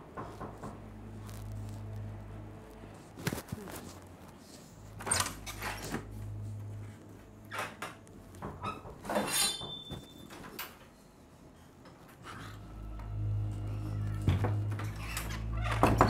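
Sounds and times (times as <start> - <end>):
low steady hum: 0.0 - 9.0, 12.3 - 16.0.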